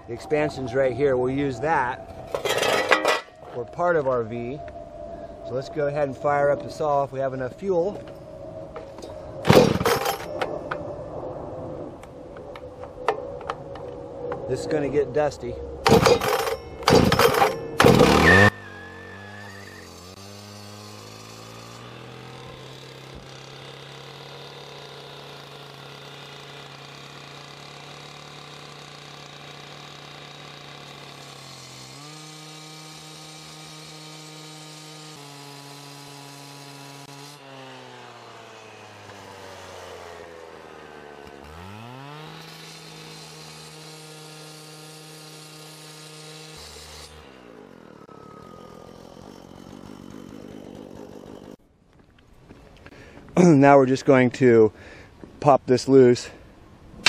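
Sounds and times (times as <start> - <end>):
petrol cut-off saw running: 8.8 - 10.5, 15.8 - 51.6.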